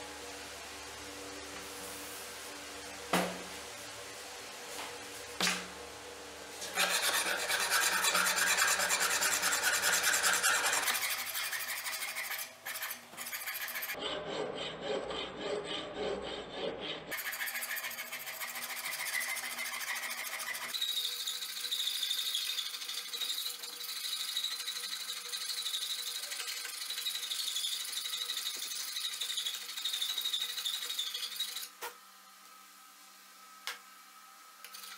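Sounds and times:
hand file rasping on steel blade: 6.6s - 31.8s.

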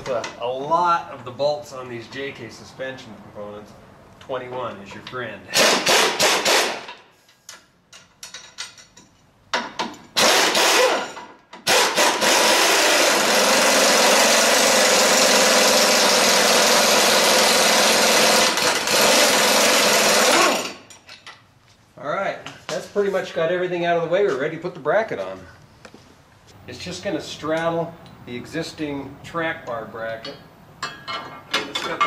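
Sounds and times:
impact wrench running: 5.5s - 7.0s, 10.2s - 20.9s.

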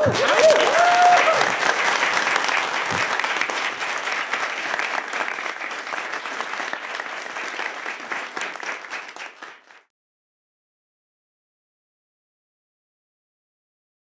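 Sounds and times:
group of people applauding: 0.0s - 9.9s.

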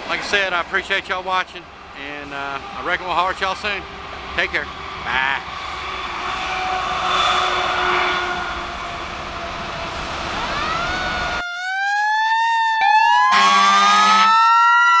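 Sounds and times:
outdoor background noise: 0.0s - 15.0s
siren-like wail: 4.7s - 15.0s.

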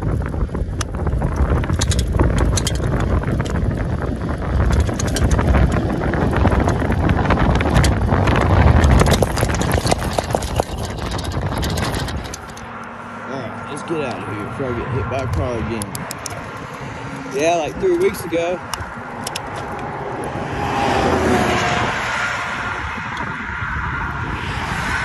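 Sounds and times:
bike rattling clicks: 0.0s - 13.0s, 15.2s - 20.4s
road noise: 0.0s - 25.0s
wind buffeting microphone: 0.0s - 25.0s.

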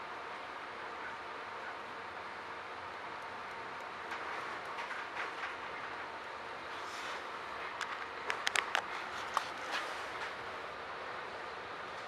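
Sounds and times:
train car rushing noise: 3.0s - 12.0s.

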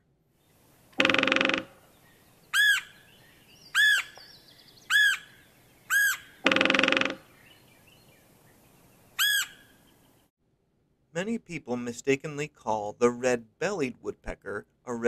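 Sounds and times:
woodpecker call notes: 0.9s - 10.3s
woodpecker drumming on wood: 1.0s - 1.9s, 5.9s - 7.3s.

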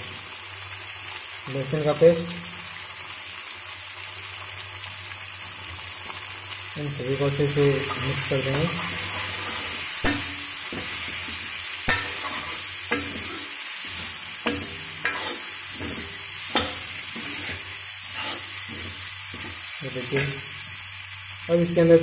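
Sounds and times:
vegetables sizzling in oil: 0.0s - 22.0s
metal ladle knocking pan: 10.0s - 20.5s.

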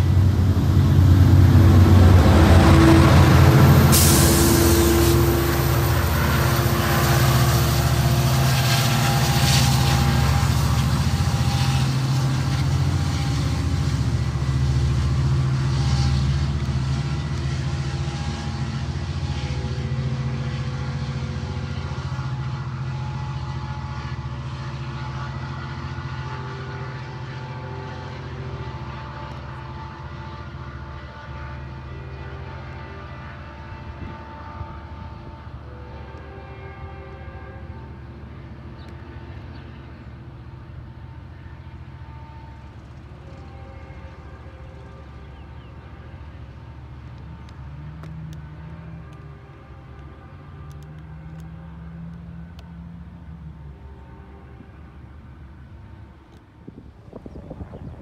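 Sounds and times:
diesel locomotive engine drone: 0.0s - 58.0s
wheel and rail noise: 0.0s - 58.0s
sharp hiss or clank: 3.9s - 4.8s.

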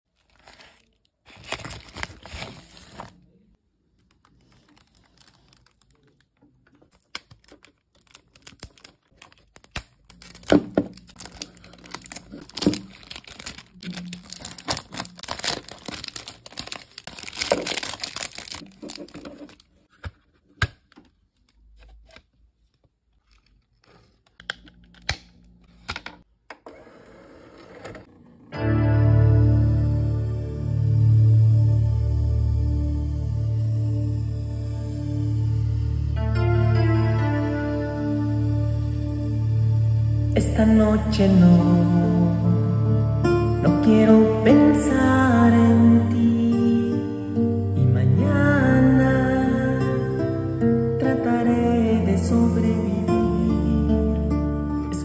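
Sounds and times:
cellophane tearing and crinkling: 0.1s - 3.2s, 4.0s - 19.9s.

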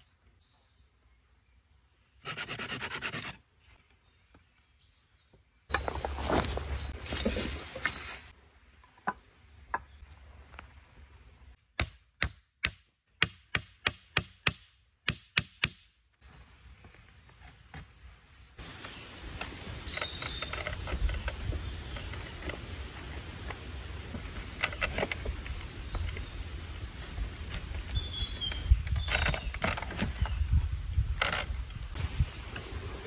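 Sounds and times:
axe chopping wood: 11.7s - 15.9s.

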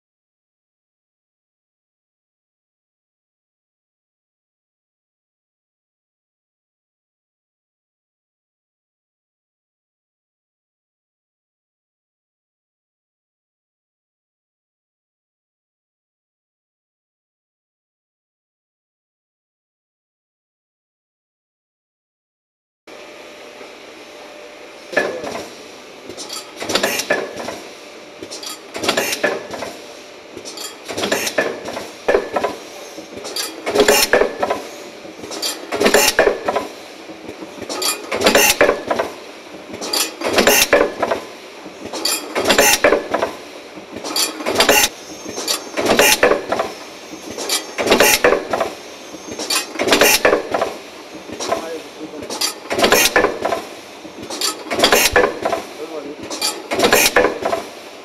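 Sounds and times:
steady machine noise: 22.9s - 58.0s.

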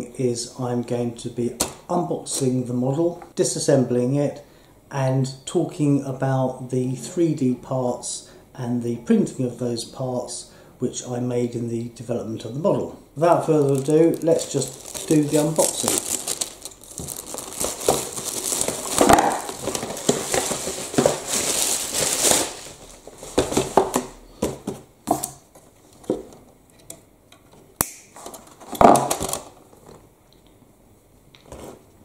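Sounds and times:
plastic shrink-wrap crinkling: 13.4s - 24.1s, 28.8s - 29.6s.

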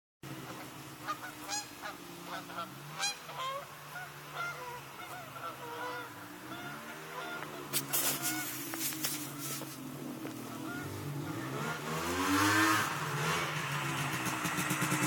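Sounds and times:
low engine hum: 0.2s - 15.0s
short honking calls: 0.4s - 9.8s, 10.4s - 11.6s.

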